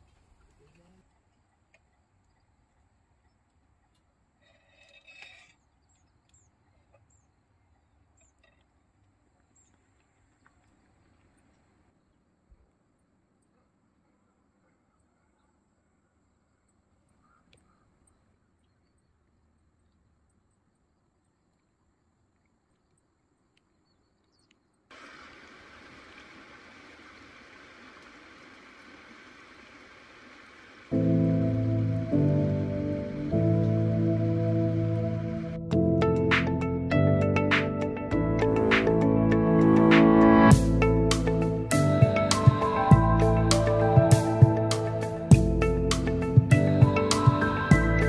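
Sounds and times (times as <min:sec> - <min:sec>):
soft clicks: 0:22.4 - 0:24.6.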